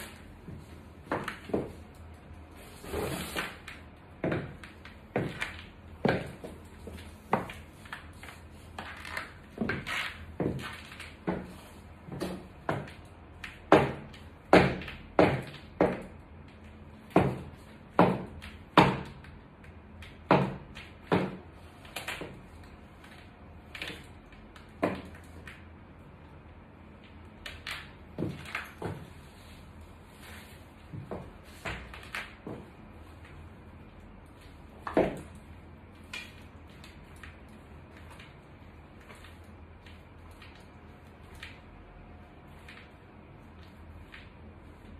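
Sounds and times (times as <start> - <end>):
high heels clicking on tile floor: 0.0 - 2.1, 3.6 - 19.3, 30.2 - 33.4.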